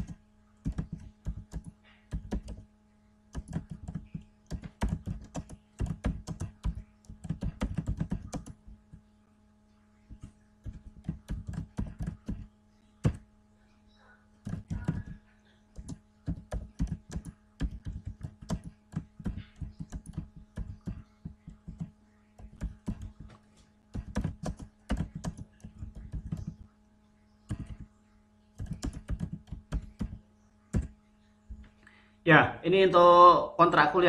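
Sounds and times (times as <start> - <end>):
keyboard keystroke clicks: 0.0 - 2.6, 3.4 - 8.6, 10.2 - 13.2, 14.5 - 15.2, 15.8 - 23.3, 24.0 - 26.6, 27.5 - 27.8, 28.6 - 30.9
steady low hum: 0.0 - 34.0.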